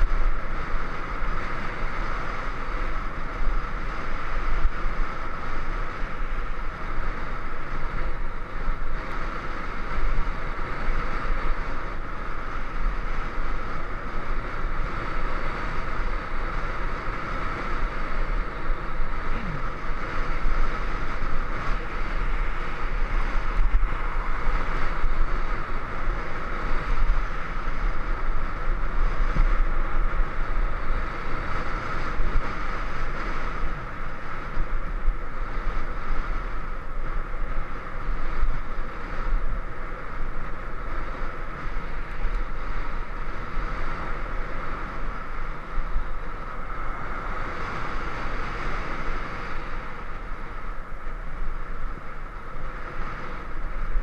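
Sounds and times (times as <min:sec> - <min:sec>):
wind rush over microphone: 0:00.0 - 0:54.0.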